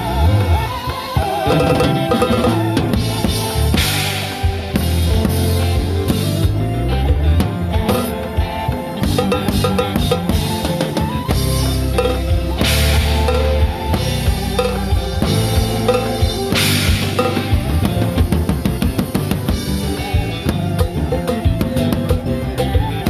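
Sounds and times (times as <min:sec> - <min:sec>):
bass guitar: 0:00.0 - 0:23.0
electric guitar: 0:00.0 - 0:23.0
bass drum and snare beat: 0:09.1 - 0:23.0.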